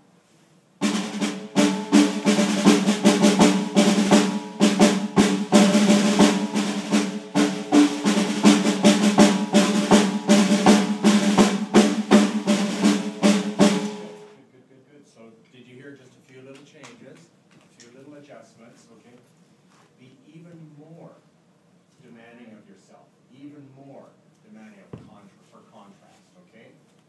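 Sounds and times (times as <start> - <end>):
snare drum rolls: 0.8 - 14.4.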